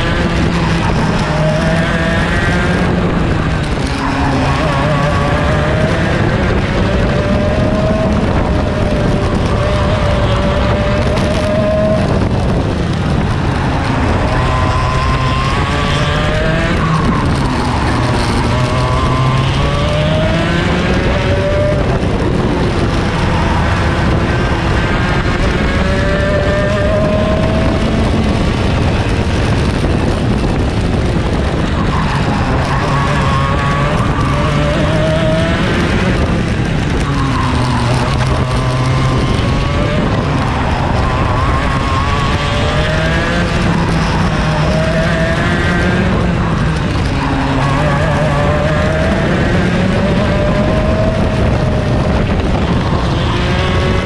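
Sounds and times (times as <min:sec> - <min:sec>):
two-stroke kart engine racing: 0:00.0 - 0:54.0.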